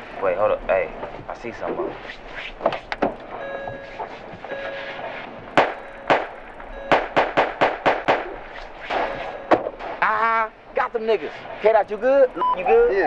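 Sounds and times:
gunshots: 5.6s - 6.3s, 6.9s - 9.2s.

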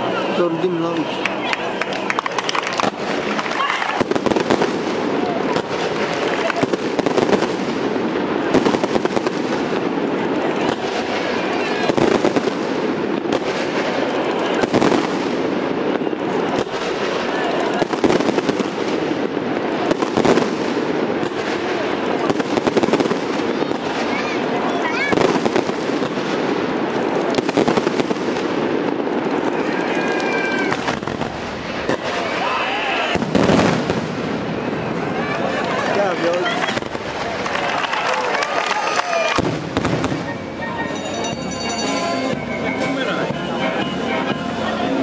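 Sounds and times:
fireworks bangs and crackles: 0.0s - 45.0s.

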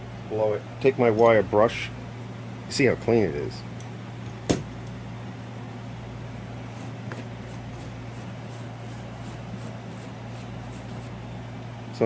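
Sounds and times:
steady low hum: 0.0s - 12.0s
wire brush scrubbing metal: 7.4s - 11.2s.

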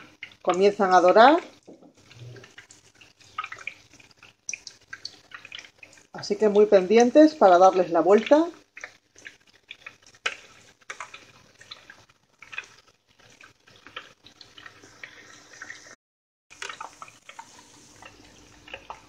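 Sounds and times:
deep-frying sizzle with crackling pops: 0.0s - 19.0s.

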